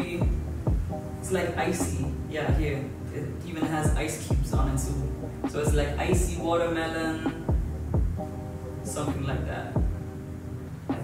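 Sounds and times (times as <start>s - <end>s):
deep bass drum hits: 0.2s - 0.9s, 7.5s - 8.2s
held synth chord: 7.5s - 9.1s.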